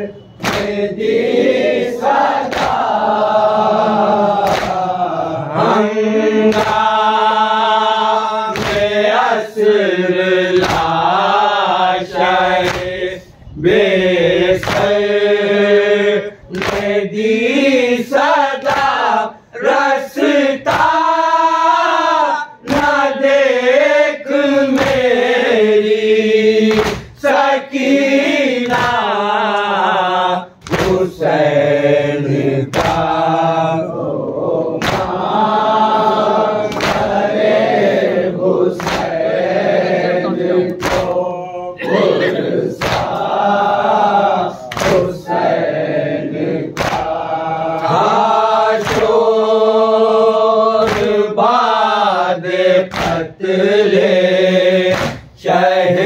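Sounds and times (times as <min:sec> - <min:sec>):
men chanting in unison: 0:00.0 - 0:56.0
chest slaps: 0:00.4 - 0:00.8, 0:02.4 - 0:02.9, 0:04.4 - 0:04.8, 0:08.5 - 0:09.0, 0:10.6 - 0:11.0, 0:12.6 - 0:13.0, 0:14.6 - 0:15.0, 0:16.5 - 0:17.0, 0:22.6 - 0:23.0, 0:24.7 - 0:25.1, 0:26.7 - 0:27.2, 0:28.6 - 0:29.7, 0:30.6 - 0:31.1, 0:32.7 - 0:33.1, 0:34.8 - 0:35.2, 0:36.7 - 0:37.2, 0:38.8 - 0:39.2, 0:40.7 - 0:43.3, 0:44.6 - 0:45.2, 0:46.8 - 0:47.2, 0:48.8 - 0:49.2, 0:50.8 - 0:51.2, 0:52.9 - 0:53.2, 0:54.9 - 0:55.4.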